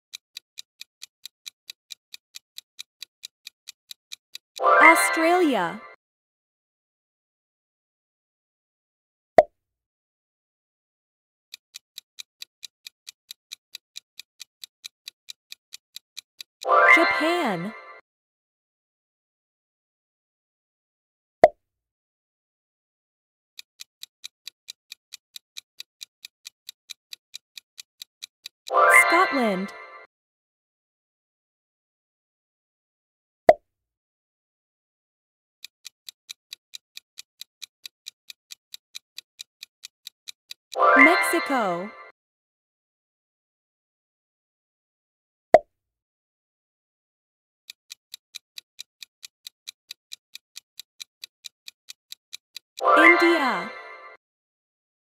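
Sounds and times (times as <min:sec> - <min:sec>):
clock ticking: 0:00.1 - 0:06.0, 0:11.5 - 0:18.0, 0:23.6 - 0:30.1, 0:35.6 - 0:42.1, 0:47.7 - 0:54.2.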